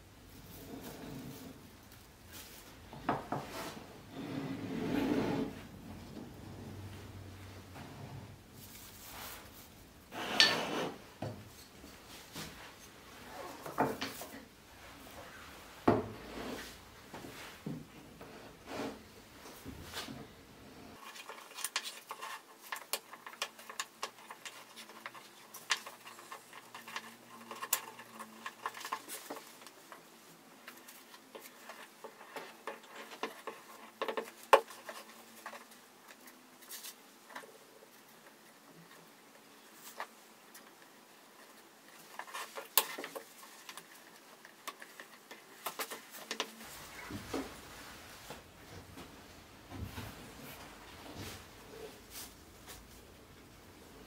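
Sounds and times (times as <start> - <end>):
wood scraping on workbench: 0.5 - 1.6, 3.0 - 5.7, 10.1 - 11.1.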